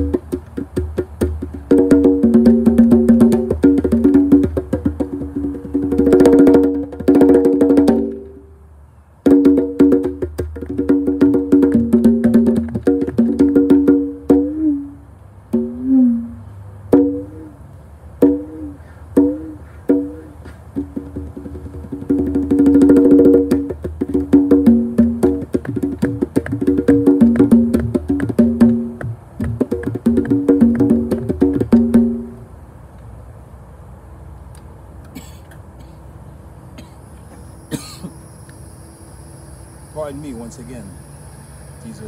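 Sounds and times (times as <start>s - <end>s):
conga drums played by hand: 0.0s - 8.5s, 9.2s - 17.5s, 18.2s - 32.4s.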